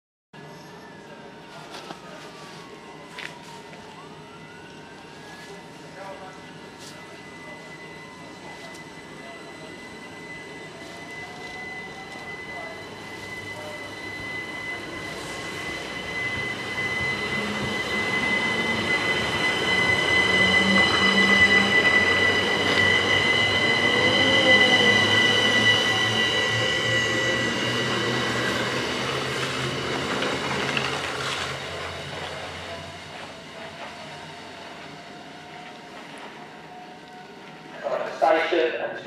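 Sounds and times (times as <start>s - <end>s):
train rumble: 6.0s - 38.8s.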